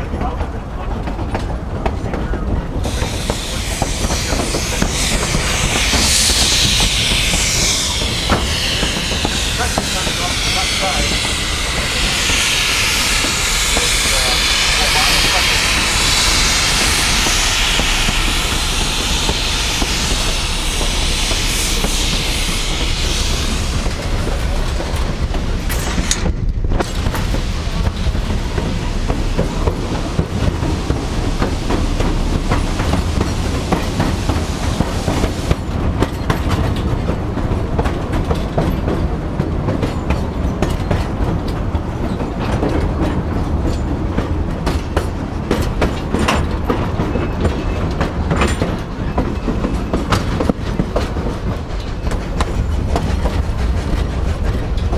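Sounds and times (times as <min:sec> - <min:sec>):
wheels clickety-clack: 0:00.0 - 0:12.3, 0:23.8 - 0:54.9
train wheels rumbling on rails: 0:00.0 - 0:54.9
loud high hiss: 0:02.8 - 0:26.2.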